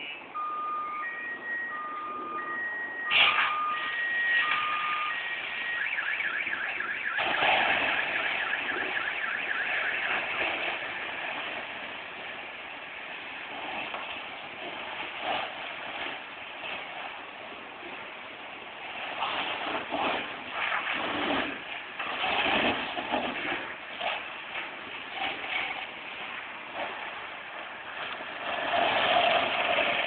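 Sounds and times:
car alarm warbling: 0:00.0 - 0:10.6
crackles: 0:00.0 - 0:30.0
steady rushing noise: 0:00.0 - 0:30.0.

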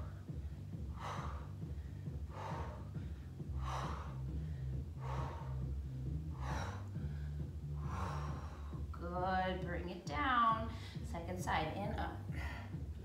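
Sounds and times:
woman breathing hard: 0:00.0 - 0:09.0, 0:10.7 - 0:11.1, 0:12.2 - 0:13.0.

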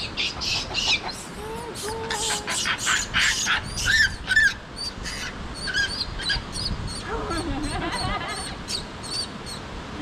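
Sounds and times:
monkey drawn-out coo: 0:00.4 - 0:05.9.

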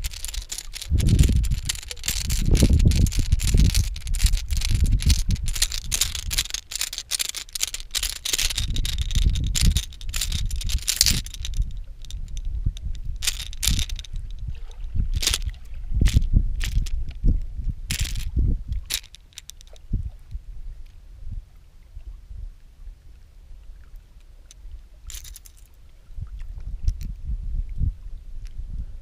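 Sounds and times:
rapid rattling and clicking: 0:00.0 - 0:14.3, 0:15.1 - 0:16.9, 0:17.9 - 0:19.8, 0:25.1 - 0:25.7
wind gusting on microphone: 0:00.0 - 0:19.0, 0:26.0 - 0:29.0.

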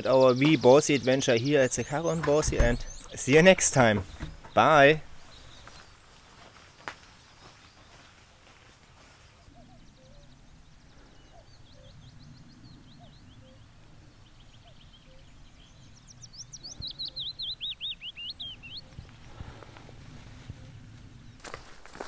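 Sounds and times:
songbird chirping: 0:00.0 - 0:22.0
faint low rumble: 0:18.4 - 0:22.0.

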